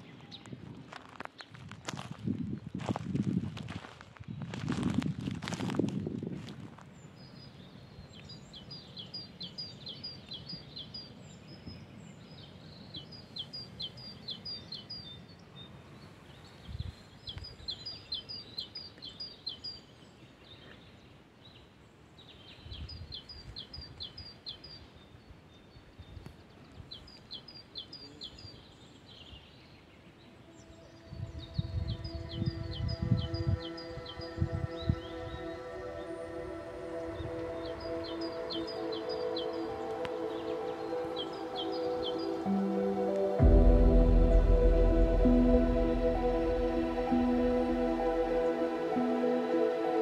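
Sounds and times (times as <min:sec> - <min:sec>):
songbird singing high notes: 0:30.3 - 0:50.0.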